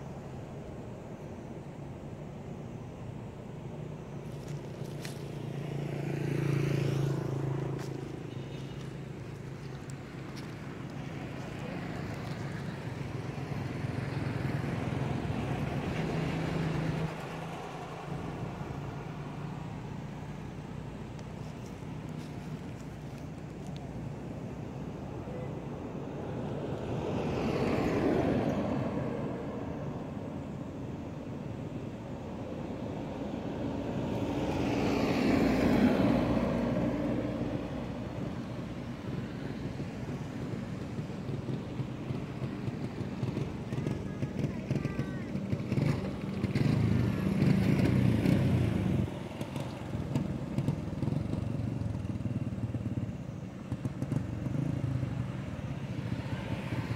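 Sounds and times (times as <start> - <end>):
vehicle engine passing by: 4.2 - 23.4, 32.9 - 56.9
vehicle engine running: 40.1 - 55.6.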